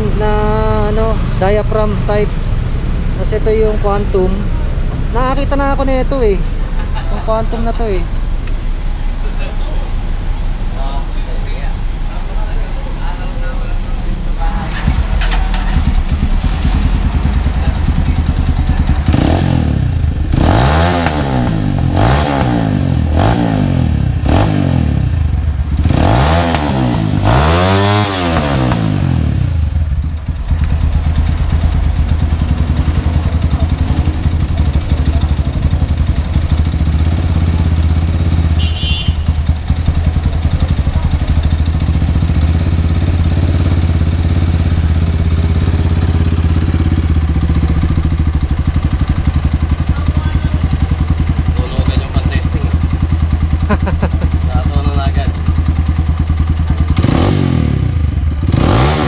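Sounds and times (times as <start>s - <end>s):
motorcycle engine idling: 0.0s - 26.0s, 27.0s - 58.5s
motorcycle engine throttle blips: 13.2s - 58.5s.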